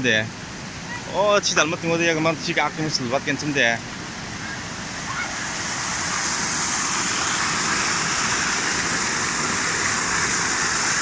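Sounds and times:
waterfall splashing into pool: 0:04.4 - 0:11.0.

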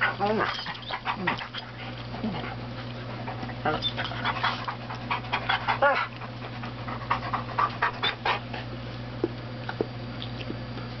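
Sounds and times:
dogs panting and huffing: 0:00.0 - 0:09.9
dog whine: 0:05.6 - 0:06.2.

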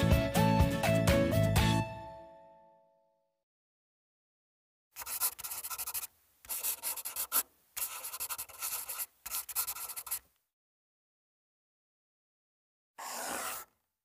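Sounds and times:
pen scratching on paper: 0:05.0 - 0:10.3, 0:13.0 - 0:13.8.

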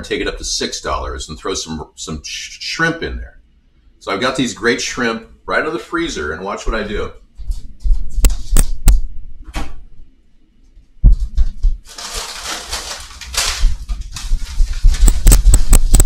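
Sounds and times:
plastic bag crinkling: 0:11.8 - 0:16.0.

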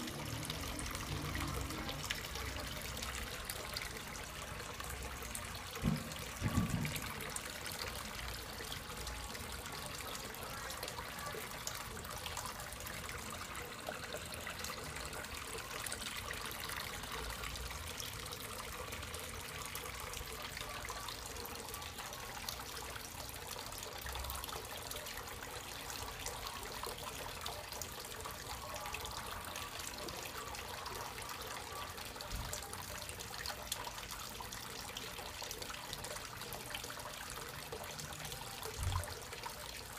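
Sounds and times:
water pouring into pond tub: 0:00.0 - 0:39.9.

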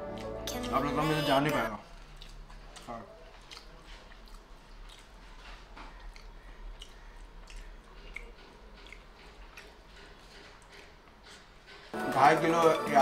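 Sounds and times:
faint chewing: 0:00.0 - 0:12.0
wet mouth clicks and smacks: 0:02.0 - 0:11.0.

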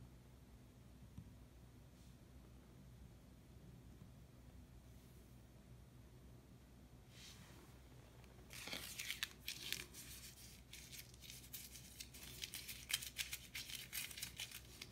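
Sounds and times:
paper receipt crumpling: 0:08.4 - 0:14.9.

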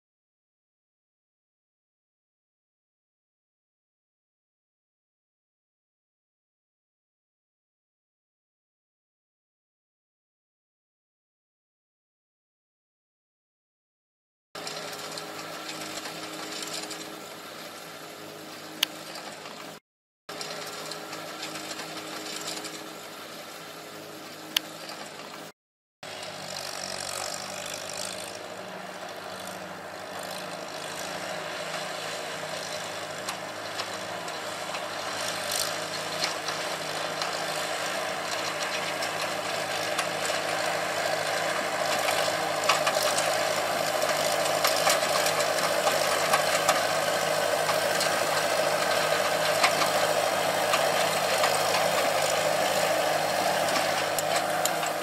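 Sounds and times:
hay rake rattling and clicking: 0:14.6 - 0:25.5, 0:26.1 - 0:55.0
tractor engine running: 0:14.6 - 0:25.5, 0:26.1 - 0:55.0.

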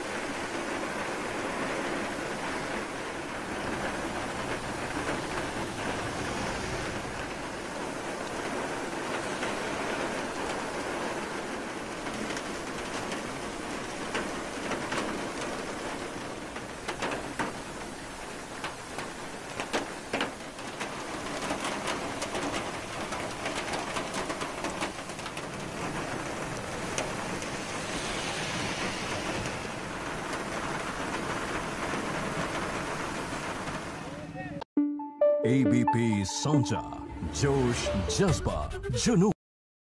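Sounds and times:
heavy rain on road: 0:00.0 - 0:34.6.

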